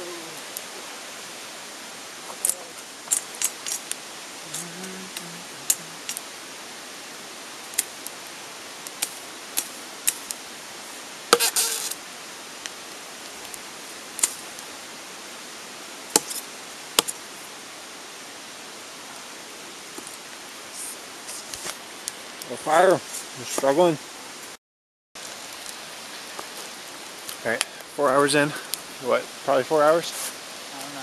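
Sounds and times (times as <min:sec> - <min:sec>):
steady hiss: 0:00.0 - 0:24.6, 0:25.2 - 0:31.0
machete snapping branches: 0:16.2 - 0:16.4.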